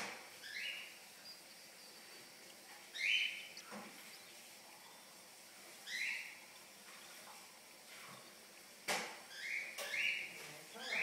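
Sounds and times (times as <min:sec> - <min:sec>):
bird chicks begging calls: 0:00.4 - 0:02.2, 0:02.9 - 0:05.2, 0:09.3 - 0:11.0.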